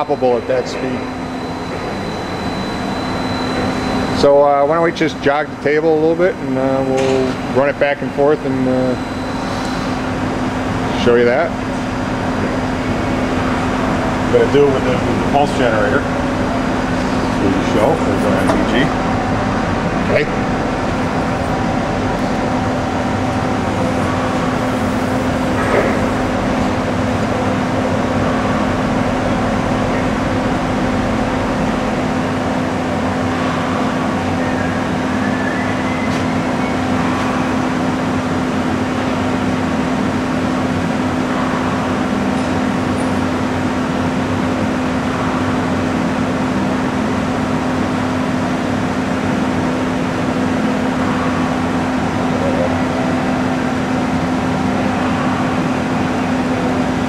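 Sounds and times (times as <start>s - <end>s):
milling machine humming: 0.0s - 57.0s
faint rising whine: 8.0s - 47.9s.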